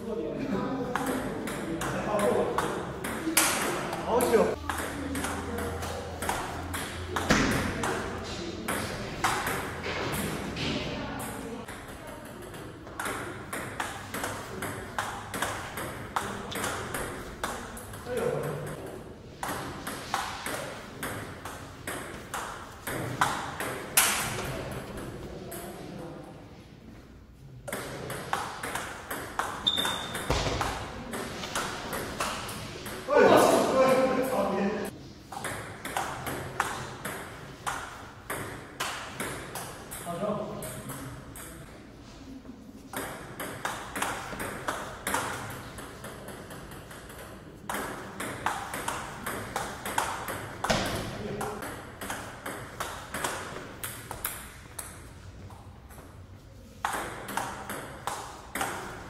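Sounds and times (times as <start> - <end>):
ping pong ball clicking off paddles: 0.9 - 10.4, 11.2 - 25.7, 27.6 - 33.1, 35.2 - 41.8, 42.9 - 56.1, 56.8 - 59.0
ball bouncing on table: 1.0 - 25.2, 27.7 - 33.1, 42.9 - 56.0, 56.8 - 59.0
short high squeak: 29.6 - 30.3.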